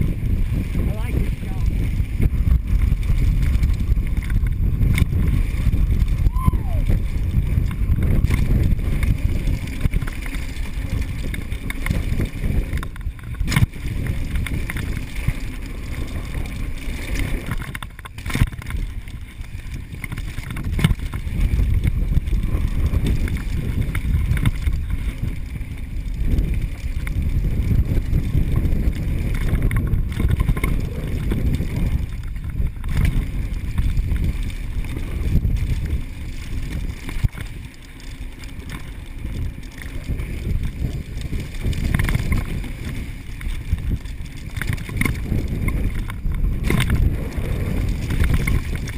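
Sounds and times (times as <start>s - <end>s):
tyres on dirt: 0.0s - 48.9s
wind on microphone: 0.0s - 48.9s
bike knocking over bumps: 17.3s - 25.1s.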